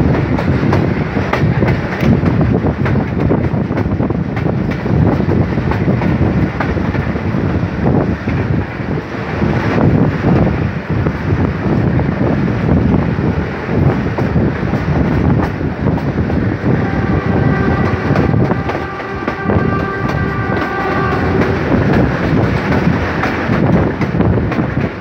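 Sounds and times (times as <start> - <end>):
train rumble and wind: 0.0 - 25.0
locomotive horn: 16.7 - 22.2.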